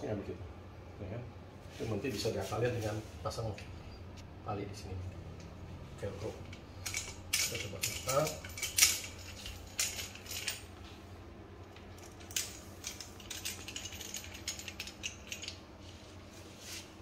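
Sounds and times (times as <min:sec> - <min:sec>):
metallic clicks and rattles of bike: 0:06.2 - 0:10.9, 0:11.6 - 0:15.7.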